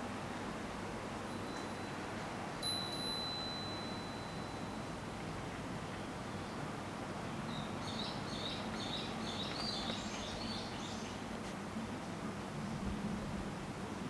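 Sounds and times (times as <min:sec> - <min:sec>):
small bird chirping: 0:07.5 - 0:11.2.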